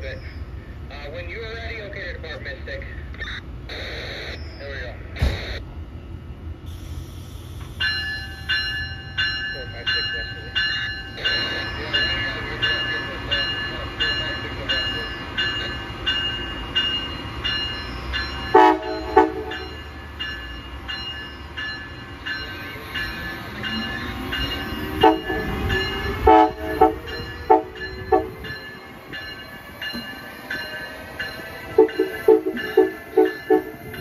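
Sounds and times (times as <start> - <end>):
train rumbling: 0.0 - 34.0
locomotive bell ringing: 7.6 - 34.0
locomotive horn toots: 18.5 - 19.7, 25.0 - 28.5, 31.7 - 33.9.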